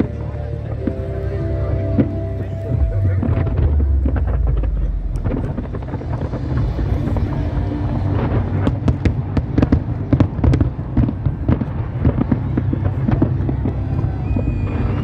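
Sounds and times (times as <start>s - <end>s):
low rumble of firework bursts: 0.0s - 15.0s
sharp cracking firework reports: 2.8s - 15.0s.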